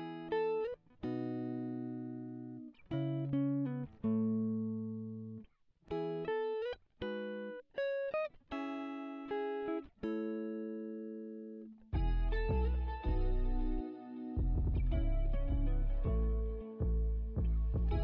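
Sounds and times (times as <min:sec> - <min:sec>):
plucked string melody: 0:11.9 - 0:18.0.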